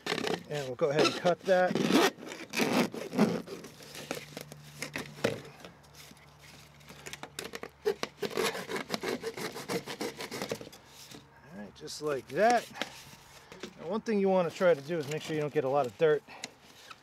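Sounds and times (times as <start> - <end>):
hacksaw cutting plastic pipe: 0.0 - 5.6, 7.0 - 11.2.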